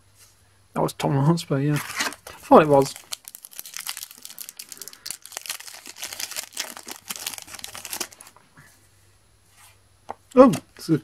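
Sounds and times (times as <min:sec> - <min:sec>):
foil packet crinkling and tearing: 0:01.8 - 0:08.4.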